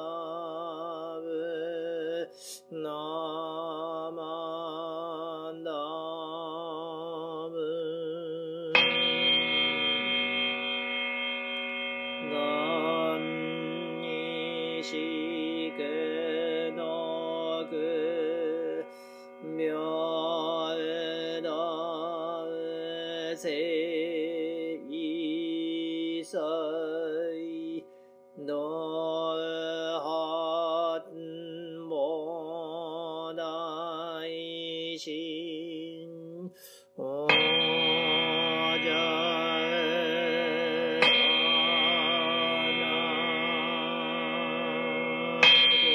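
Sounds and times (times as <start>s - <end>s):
person chanting with vibrato: 0.0s - 45.9s
steady held tones: 8.5s - 22.6s, 37.3s - 45.9s.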